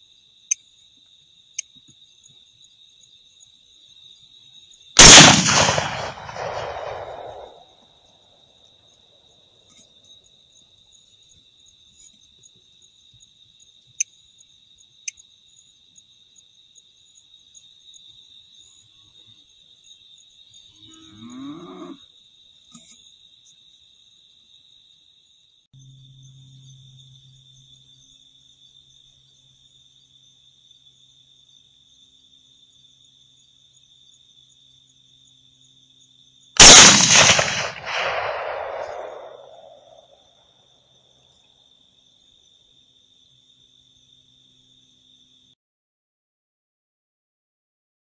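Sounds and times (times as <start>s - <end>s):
crickets chirping: 0.0s - 45.6s
rifle shot: 5.0s - 7.6s, 36.6s - 40.0s.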